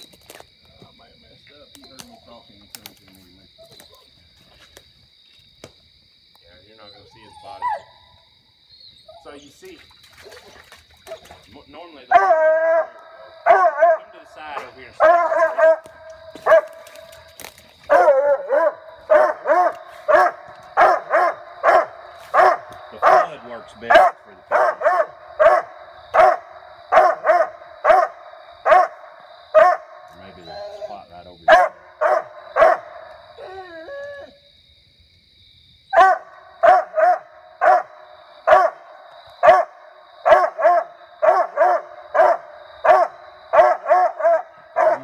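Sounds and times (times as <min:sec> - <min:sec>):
hound howling: 0:07.0 - 0:08.1, 0:12.1 - 0:16.8, 0:17.9 - 0:34.4
hound barking: 0:12.1 - 0:17.0, 0:17.9 - 0:34.0, 0:35.9 - 0:45.0.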